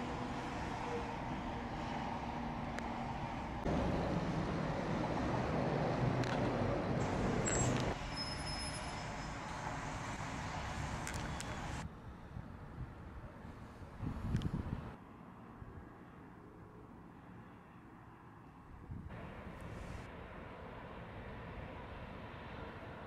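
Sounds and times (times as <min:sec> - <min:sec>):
distant city traffic: 0:00.0 - 0:23.0.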